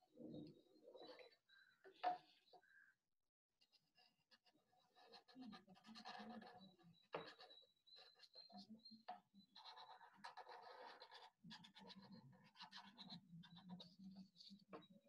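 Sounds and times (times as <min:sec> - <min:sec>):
marker scratching on paper: 0:04.4 - 0:08.6, 0:09.5 - 0:14.9.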